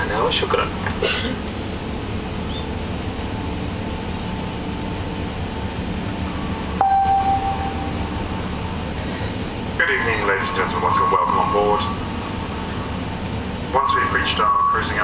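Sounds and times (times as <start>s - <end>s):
airplane cabin noise: 0.0s - 15.0s
steady single tone: 6.8s - 8.4s.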